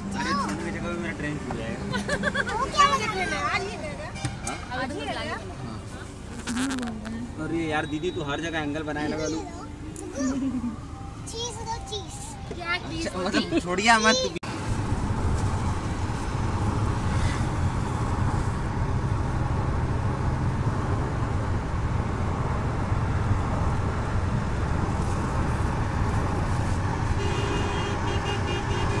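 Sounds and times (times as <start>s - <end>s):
car engine and road drone: 0.0s - 29.0s.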